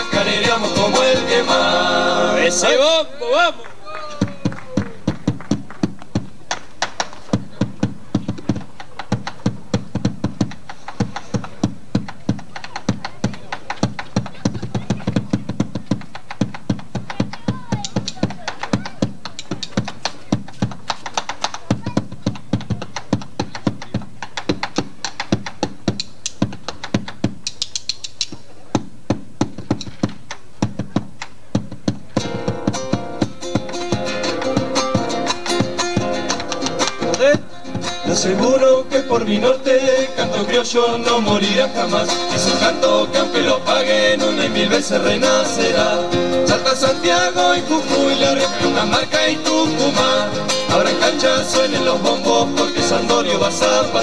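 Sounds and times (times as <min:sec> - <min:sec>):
band with guitars: 0:00.0 - 0:13.5, 0:29.6 - 0:54.0
bass drum beaten with sticks: 0:04.2 - 0:06.5, 0:07.2 - 0:38.6, 0:40.1 - 0:54.0.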